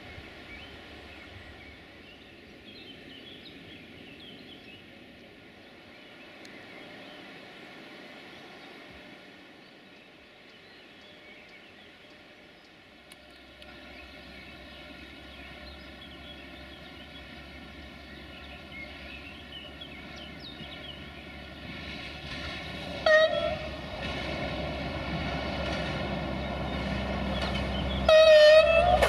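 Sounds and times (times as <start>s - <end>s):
diesel train approaching: 0.0s - 29.0s
birds chirping: 9.6s - 29.0s
train horn blast: 23.0s - 23.9s, 28.0s - 29.0s.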